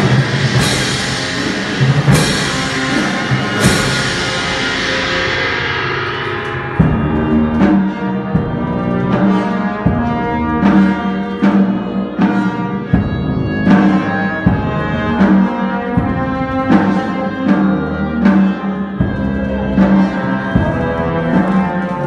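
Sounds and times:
cymbal crash: 0:00.0 - 0:20.9
bass drum strokes: 0:00.0 - 0:22.0
brass band playing funeral march: 0:00.0 - 0:22.0.

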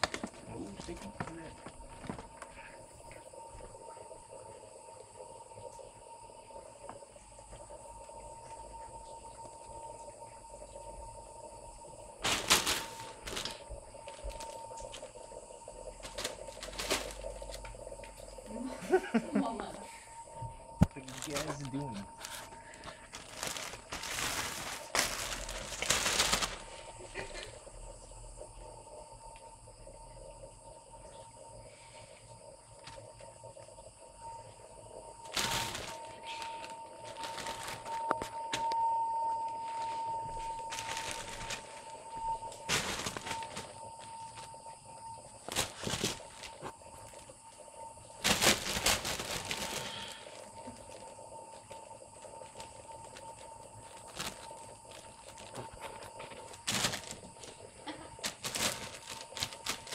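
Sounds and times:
plastic sheeting crinkling: 0:00.0 - 0:02.6, 0:12.2 - 0:15.1, 0:16.0 - 0:17.6, 0:20.8 - 0:27.5, 0:35.2 - 0:38.8, 0:39.6 - 0:44.6, 0:45.4 - 0:47.2, 0:48.2 - 0:59.9.

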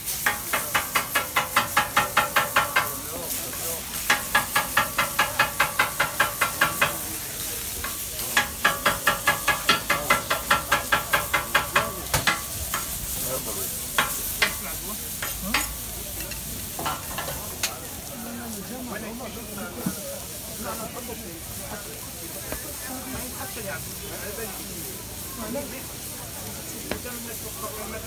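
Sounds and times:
food sizzling on griddle: 0:00.0 - 0:28.0
metal scraper clacking on griddle: 0:00.2 - 0:03.1, 0:04.0 - 0:07.2, 0:07.8 - 0:13.0, 0:14.0 - 0:17.8.

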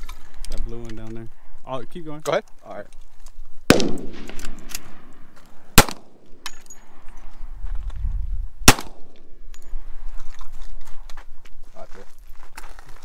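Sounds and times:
gunshots: 0:03.7 - 0:06.4, 0:08.6 - 0:09.3.

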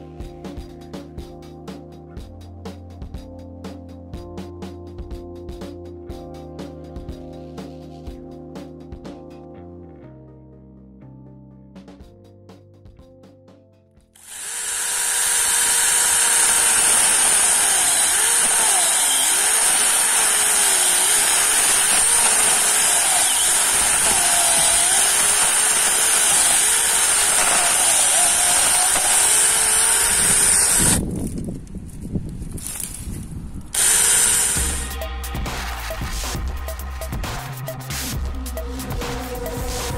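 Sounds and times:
chainsaw cutting wood: 0:14.2 - 0:31.0, 0:33.8 - 0:35.0.

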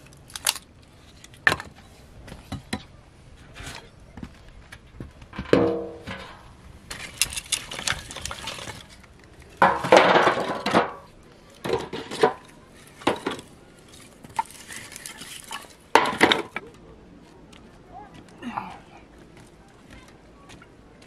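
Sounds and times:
firewood sticks clattering: 0:00.0 - 0:01.9, 0:05.3 - 0:16.7
metal basin ringing: 0:05.6 - 0:06.4.

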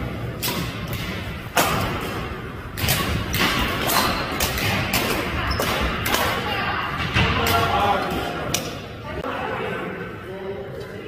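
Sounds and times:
rackets striking shuttlecock: 0:00.4 - 0:06.4.

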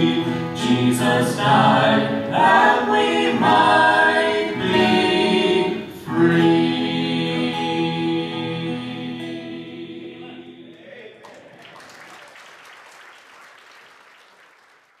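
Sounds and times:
vocal trio singing gospel: 0:00.0 - 0:11.3
audience applauding: 0:10.8 - 0:15.0.

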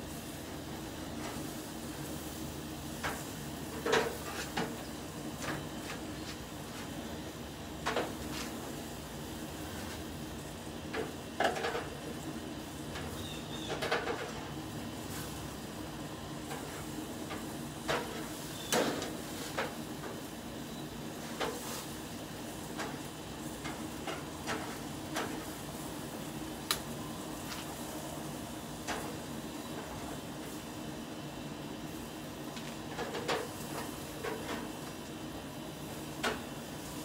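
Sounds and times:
metal spatula scraping grill grate: 0:03.0 - 0:04.7.

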